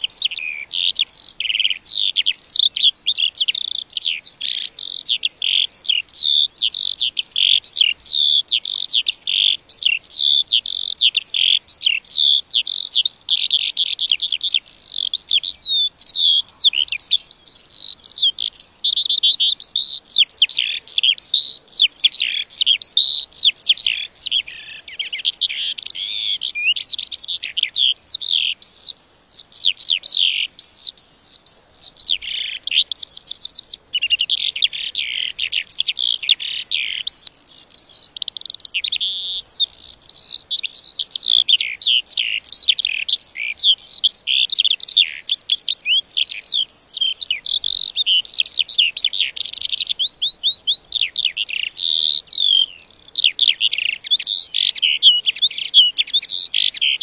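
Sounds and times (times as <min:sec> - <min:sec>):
lark singing: 0:00.0 - 0:57.0.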